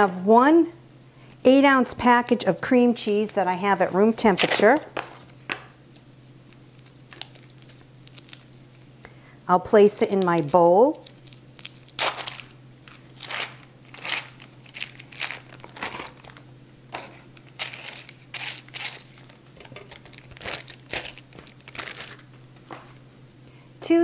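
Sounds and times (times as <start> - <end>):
foil wrapper crinkling and tearing: 6.3 - 8.9, 10.0 - 22.4.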